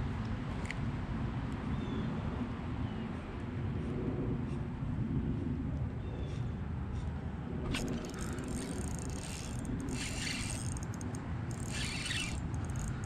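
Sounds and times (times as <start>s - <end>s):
fishing reel being cranked: 7.7s - 13.0s.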